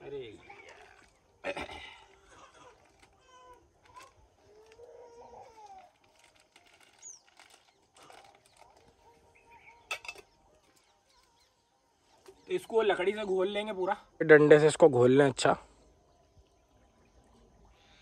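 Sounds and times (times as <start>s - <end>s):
birds calling: 6.8s - 13.4s.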